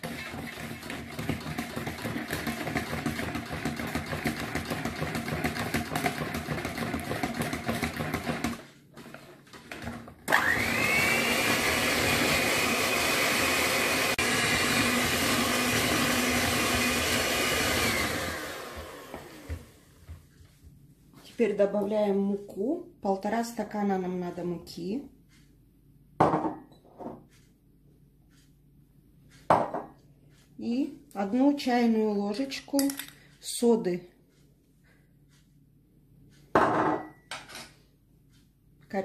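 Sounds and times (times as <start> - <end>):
electric hand mixer beating batter: 0.0 - 19.9.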